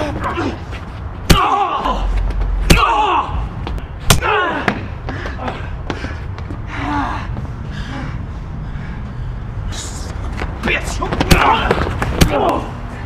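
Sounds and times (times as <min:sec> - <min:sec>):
punches landing: 0:01.2 - 0:01.9, 0:11.0 - 0:12.7.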